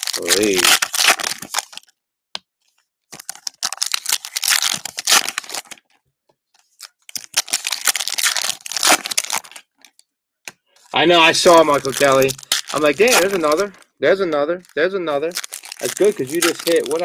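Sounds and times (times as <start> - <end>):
foil wrapper tearing and crinkling: 0.0 - 1.9, 3.1 - 5.9, 6.7 - 10.0, 11.2 - 13.9, 14.7 - 17.0.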